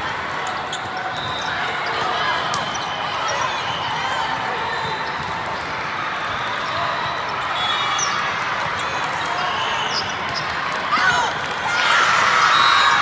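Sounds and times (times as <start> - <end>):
volleyballs bouncing on court floor: 3.5 - 5.9.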